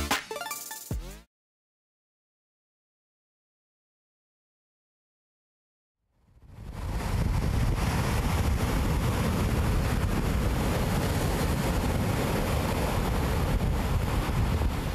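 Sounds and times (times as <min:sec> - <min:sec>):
wind on microphone: 0:06.3 - 0:14.9
ocean surf breaking on beach: 0:06.4 - 0:14.9.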